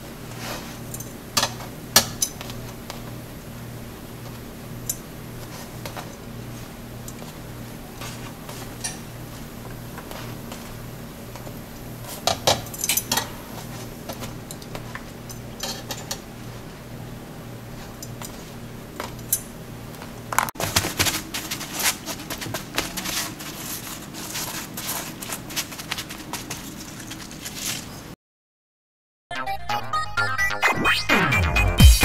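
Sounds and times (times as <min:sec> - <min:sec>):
steady low hum: 0:00.0 - 0:28.2
metal tongs clicking on wire rack: 0:00.9 - 0:02.4, 0:04.8 - 0:05.0, 0:12.3 - 0:13.4.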